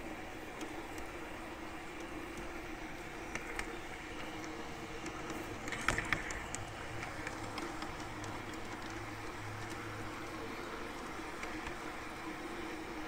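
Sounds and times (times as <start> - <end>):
electric motor and gear hum: 0.0 - 13.0.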